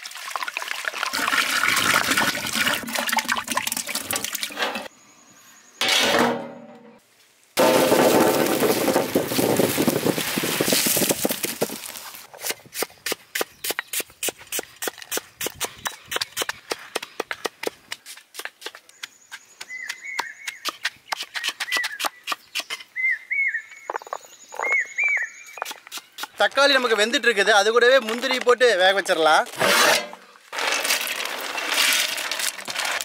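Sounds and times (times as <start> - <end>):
birds chirping: 18.9 - 27.4.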